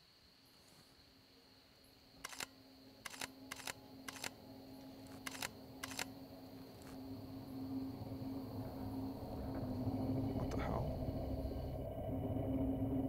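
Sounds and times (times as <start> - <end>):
camera shutter double clicks: 2.2 - 4.4, 5.2 - 6.1
faint low drone: 2.3 - 13.0.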